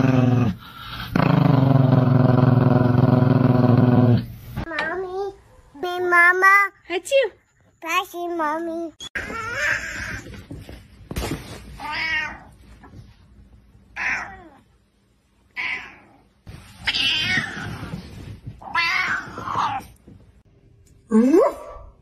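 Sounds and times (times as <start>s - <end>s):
cat meowing angrily: 16.8s - 17.8s.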